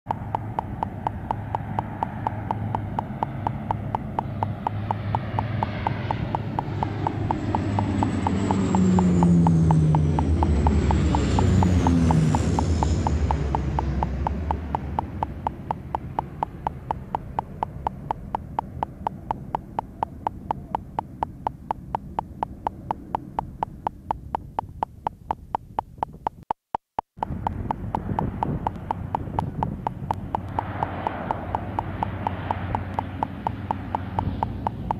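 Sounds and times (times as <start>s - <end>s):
turboprop planes passing overhead: 0.1s - 26.2s, 27.2s - 34.9s
rapid even clicking: 0.1s - 34.9s.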